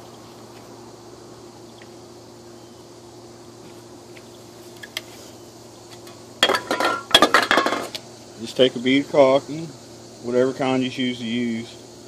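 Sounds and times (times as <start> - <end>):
faint steady hum: 0.0 - 12.0
aluminium cans clinking: 6.4 - 7.9.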